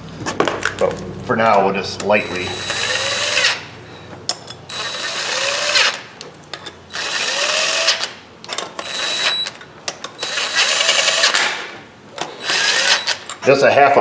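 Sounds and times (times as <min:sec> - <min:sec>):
cordless power driver whining: 0:02.0 - 0:03.7, 0:04.7 - 0:06.0, 0:08.8 - 0:09.6, 0:12.2 - 0:13.3.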